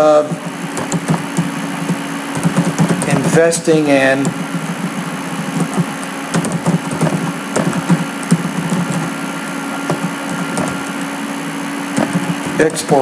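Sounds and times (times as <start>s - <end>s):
steady low hum: 0.0s - 13.0s
typing on computer keyboard: 0.8s - 3.2s, 5.6s - 9.1s.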